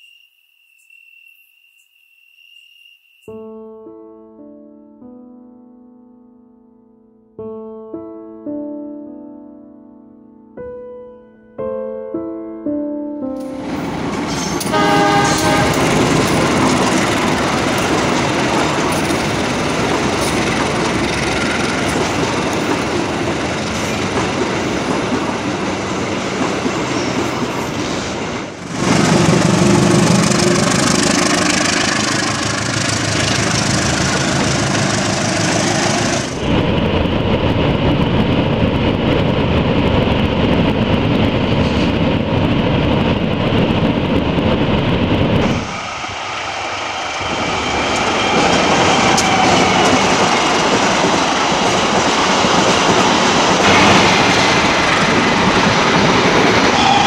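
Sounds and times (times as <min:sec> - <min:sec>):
train running on rails: 0:13.3 - 0:57.0.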